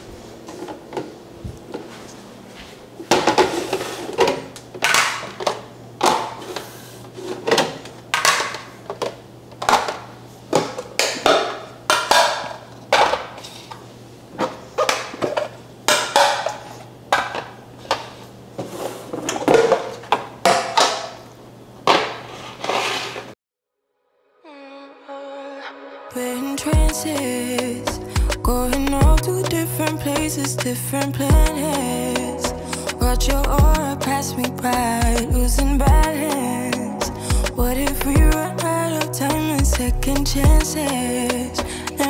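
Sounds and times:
plastic containers clattering: 3.0s - 13.7s, 14.3s - 21.2s.

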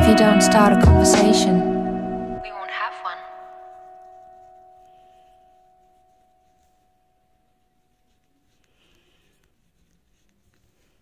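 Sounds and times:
pen scratching on paper: 3.2s - 11.0s.

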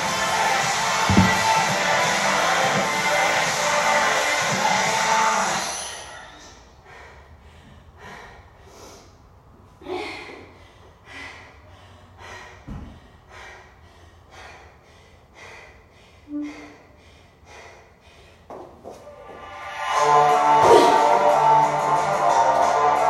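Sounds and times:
soft low thump: 1.1s - 1.6s
person breathing hard: 6.2s - 19.0s.

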